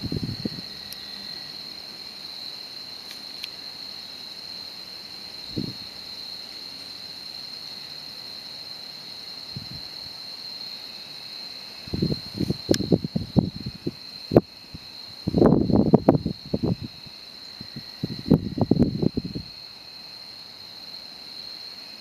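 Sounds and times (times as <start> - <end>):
faint hiss: 0.0 - 22.0
insect trill: 0.0 - 22.0.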